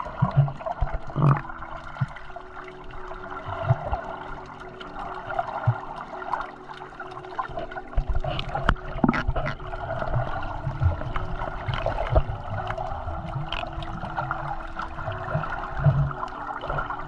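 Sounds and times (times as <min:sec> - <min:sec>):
underwater water noise: 0:00.0 - 0:17.0.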